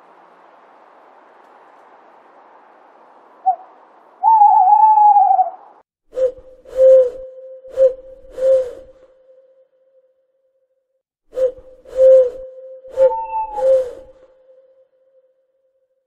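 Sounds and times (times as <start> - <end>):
owl hoots: 3.4 - 5.8, 11.9 - 14.3
owl whistle-like call: 3.4 - 9.5, 11.3 - 14.7.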